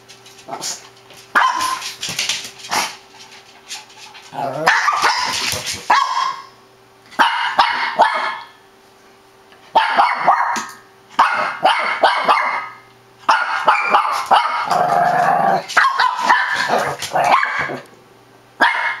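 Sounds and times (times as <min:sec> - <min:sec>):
small dog barking: 0:01.3 - 0:01.8, 0:04.6 - 0:06.5, 0:07.2 - 0:08.6, 0:09.7 - 0:14.8, 0:15.8 - 0:17.8, 0:18.6 - 0:19.0.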